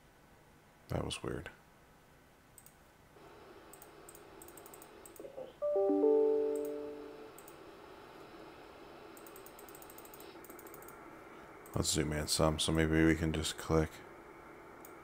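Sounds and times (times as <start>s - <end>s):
piano-like chime: 5.6s - 7.3s.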